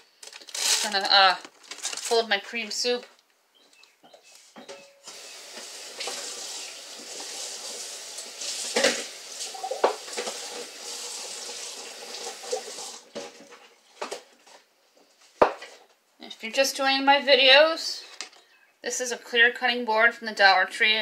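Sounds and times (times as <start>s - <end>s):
faucet running into sink: 5.1s - 13.4s
things knocking in sink: 8.7s - 10.4s.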